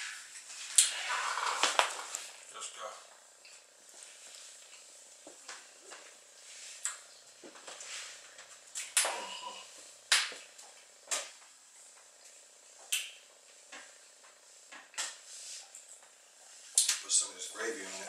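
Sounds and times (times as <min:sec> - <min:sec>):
man chewing food: 0:03.4 - 0:06.2.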